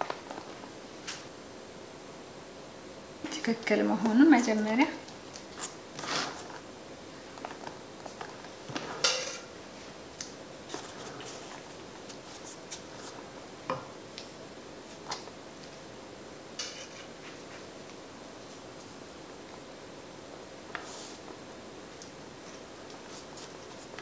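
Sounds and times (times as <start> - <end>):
utensil scraping: 5.6 - 6.6
dishes clinking and tapping: 9.0 - 9.4.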